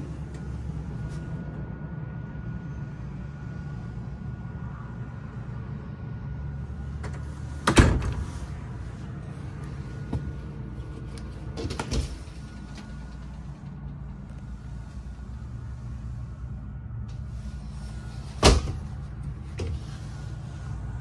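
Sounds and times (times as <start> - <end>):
steady low hum: 0.0 - 21.0
sliding door rattling on track: 11.4 - 15.0.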